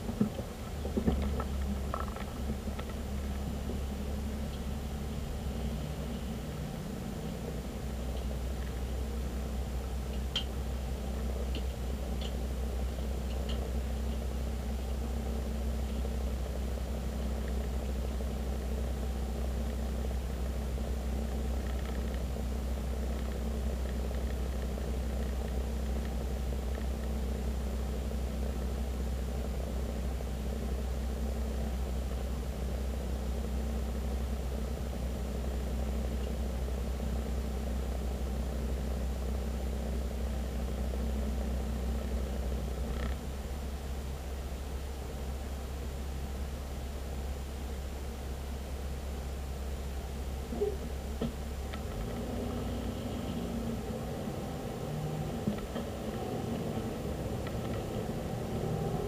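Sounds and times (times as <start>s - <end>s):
car engine rumble: 0.0s - 59.0s
faint high whine: 0.0s - 59.0s
road noise inside car: 0.0s - 59.0s
light ticks: 10.1s - 10.6s, 11.5s - 14.3s.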